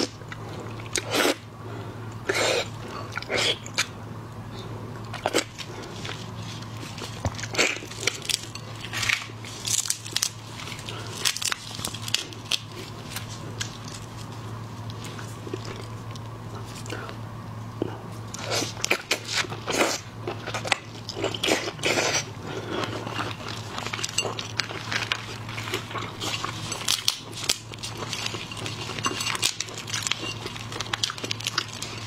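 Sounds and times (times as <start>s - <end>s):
faint low hum: 0.0s - 32.0s
wet slurping and chewing: 18.3s - 32.0s.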